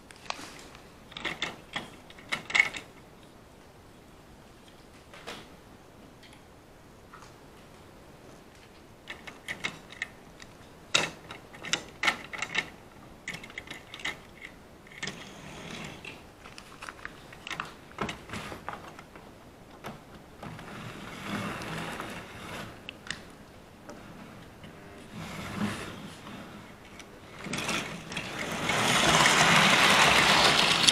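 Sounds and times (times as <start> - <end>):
model trains clicking and clattering: 26.9 - 30.9.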